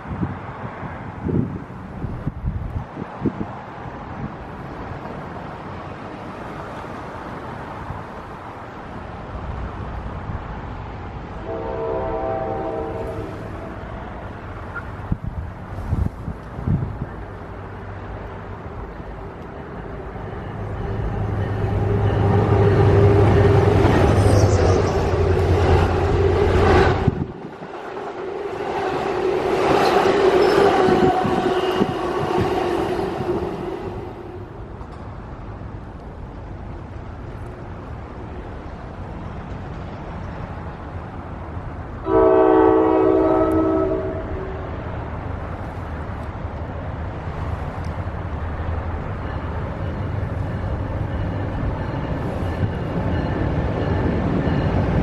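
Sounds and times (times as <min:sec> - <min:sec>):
train low rumble: 0:00.0 - 0:55.0
wind: 0:00.0 - 0:55.0
locomotive air horn chord: 0:11.4 - 0:13.9, 0:42.0 - 0:44.6.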